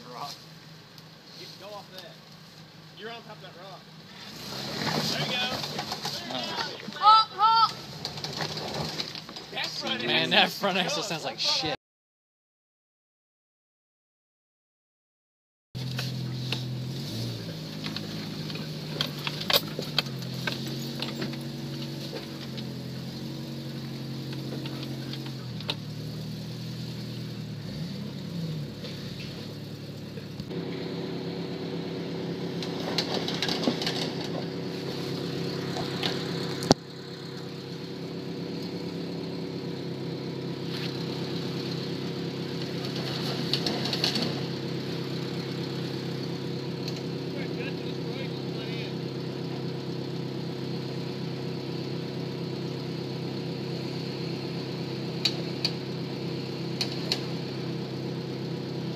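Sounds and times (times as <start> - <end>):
engine running at low revs: 15.8 - 58.9
sharp clicks and knocks: 32.6 - 34.5.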